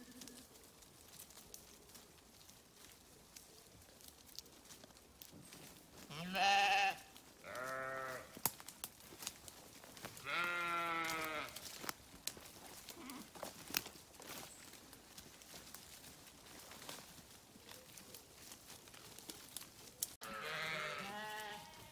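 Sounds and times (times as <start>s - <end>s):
sheep bleating: 6.1s - 8.3s, 10.2s - 11.6s, 20.2s - 21.9s.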